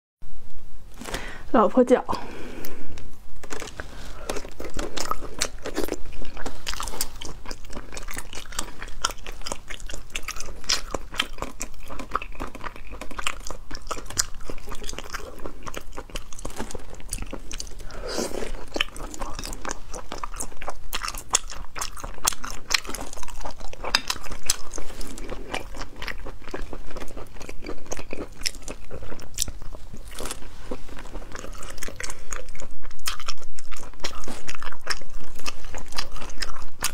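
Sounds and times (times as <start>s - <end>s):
crunching and chewing: 2.6s - 36.9s.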